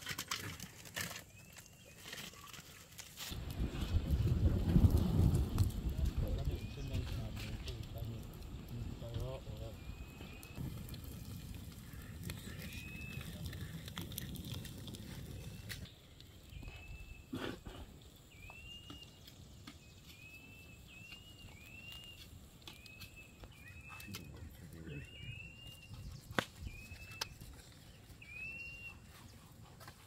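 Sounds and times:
wind rumble on microphone: 3.3s - 15.9s, 22.8s - 28.9s
bird chirping: 6.2s - 13.8s, 18.1s - 29.4s.

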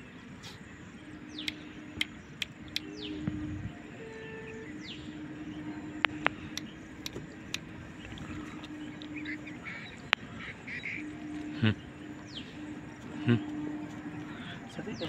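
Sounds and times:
birds calling: 0.0s - 15.0s
steady low hum: 0.0s - 15.0s
sharp clicks: 1.4s - 3.4s, 6.0s - 9.3s.

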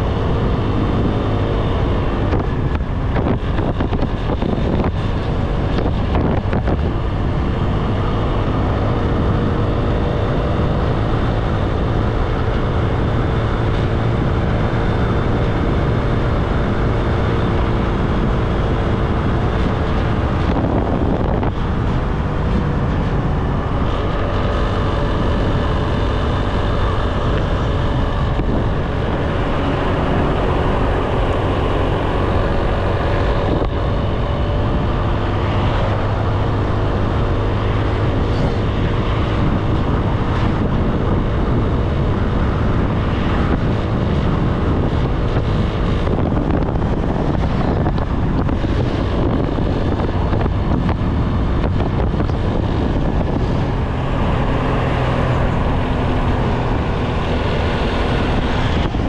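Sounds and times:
wind on microphone: 0.0s - 59.0s.

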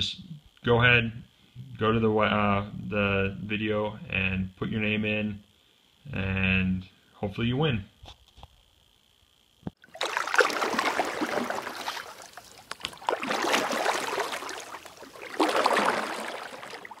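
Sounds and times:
water rushing and splashing: 9.8s - 17.0s.

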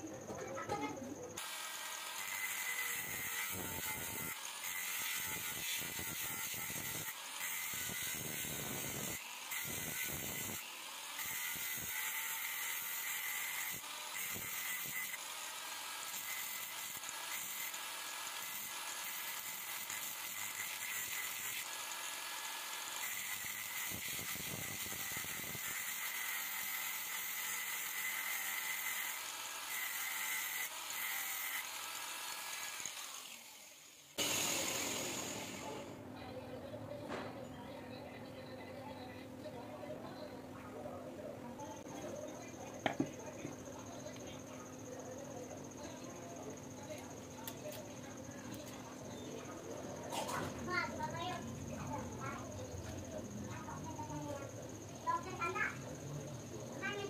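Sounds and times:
grinder wheel grinding metal: 0.4s - 36.0s.

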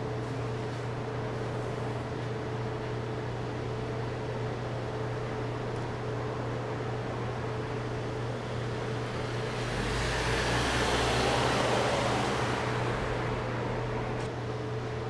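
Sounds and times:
road vehicle passing: 8.6s - 14.3s.

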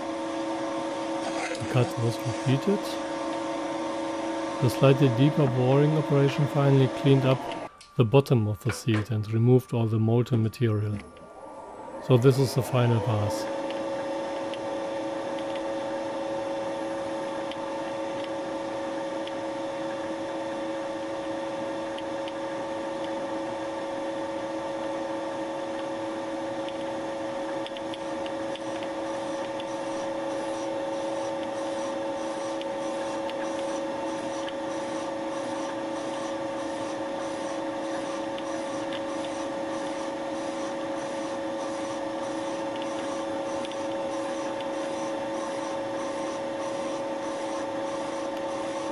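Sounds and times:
milling machine humming: 0.0s - 8.0s, 10.8s - 48.9s.

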